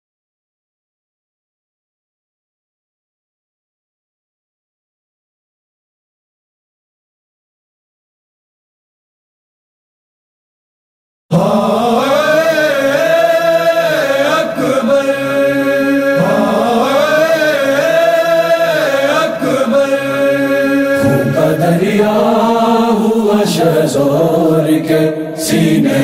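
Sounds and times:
voices chanting a mourning lament: 11.3 - 26.0.

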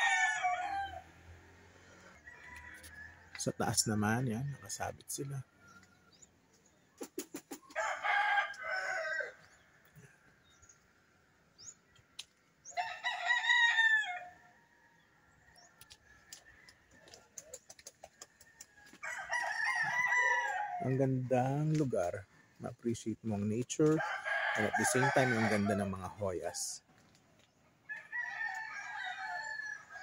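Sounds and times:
rooster crowing: 0.0 - 3.4, 7.7 - 9.6, 12.7 - 15.1, 18.8 - 21.0, 23.9 - 26.6, 27.9 - 30.0.

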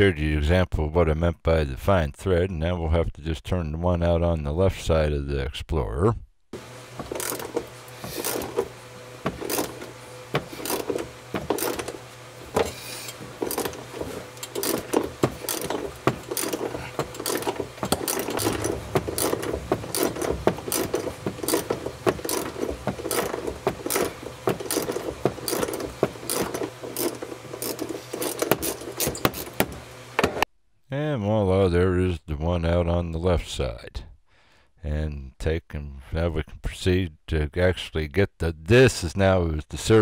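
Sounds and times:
hand ratchet clicking: 7.0 - 29.8.

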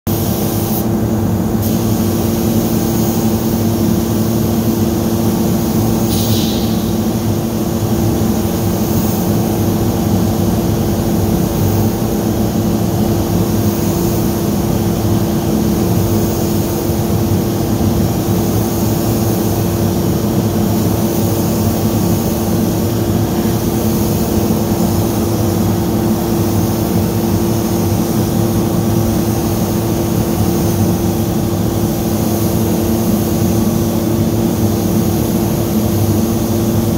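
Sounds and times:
mechanical drone with low hum: 0.1 - 36.9
short hiss: 6.1 - 6.8.

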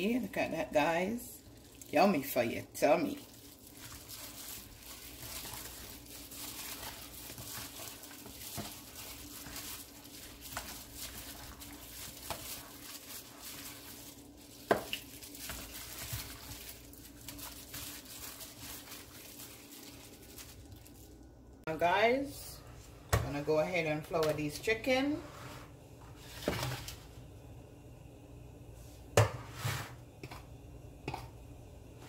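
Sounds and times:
wet squishing of marinated meat: 1.4 - 2.0, 3.0 - 21.2.

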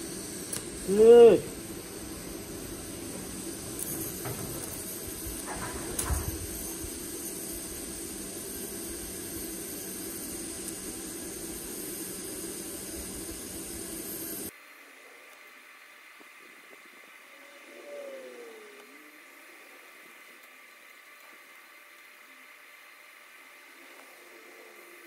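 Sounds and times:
welding arc hissing: 0.0 - 17.4
faint clicks: 18.7 - 19.0.

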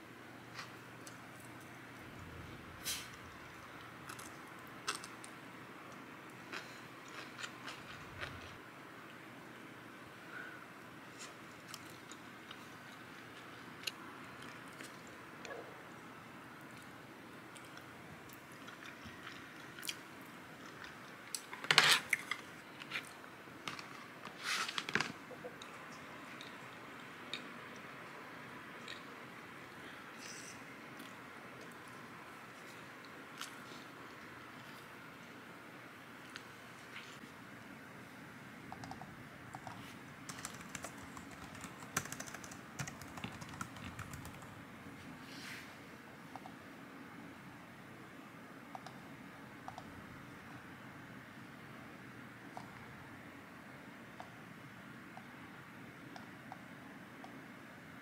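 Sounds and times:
quiet chewing: 2.9 - 8.6, 16.6 - 21.5
computer keyboard typing: 38.7 - 44.5, 49.6 - 49.9.

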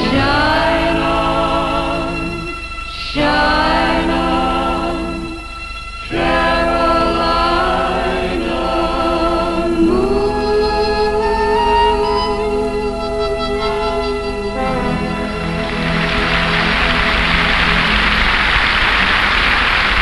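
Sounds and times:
woman singing slow song: 0.0 - 5.4, 8.4 - 15.6
musical accompaniment: 0.0 - 20.0.

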